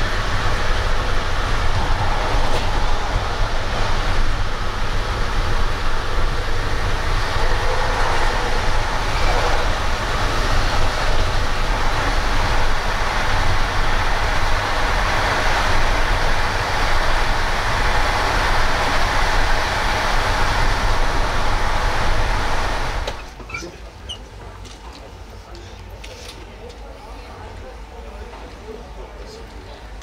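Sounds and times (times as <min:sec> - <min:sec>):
broad rushing noise: 0:00.0 - 0:23.1
train wheels rumbling on rails: 0:00.0 - 0:30.0.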